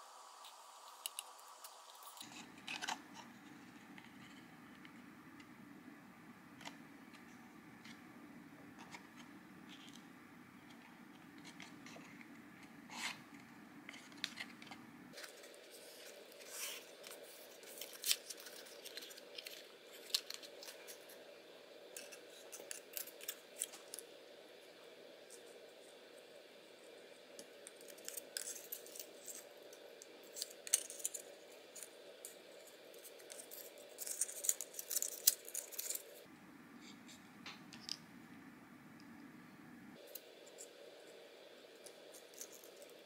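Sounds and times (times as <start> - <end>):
paper rustling and crackling: 13.9 - 21.1.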